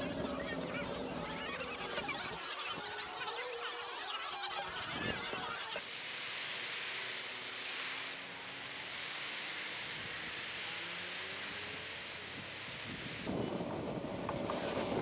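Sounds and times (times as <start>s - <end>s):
crowd chatter: 0.0s - 5.8s
wind rushing over microphone: 12.3s - 15.0s.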